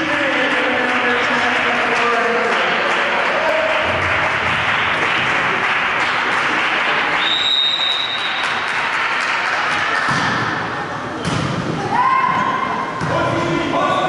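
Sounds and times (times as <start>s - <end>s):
spectators applauding and cheering: 0.0s - 10.1s
referee's whistle: 7.2s - 8.4s.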